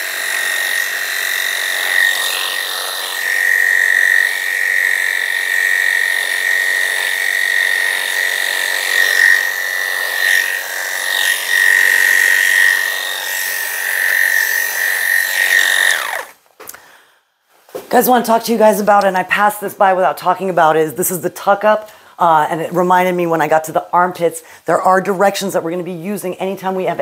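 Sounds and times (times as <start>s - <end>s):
electric clippers buzzing: 0.0s - 16.4s.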